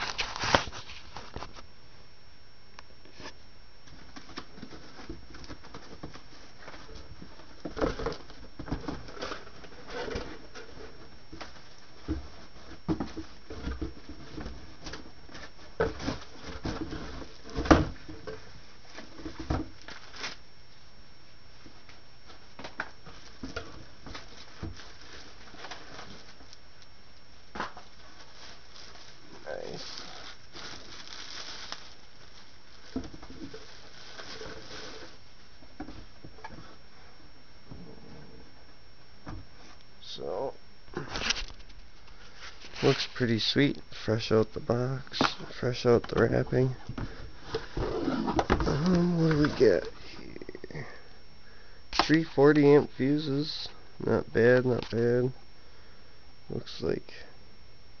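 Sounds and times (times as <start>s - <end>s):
faint hiss: 39.6s - 57.4s.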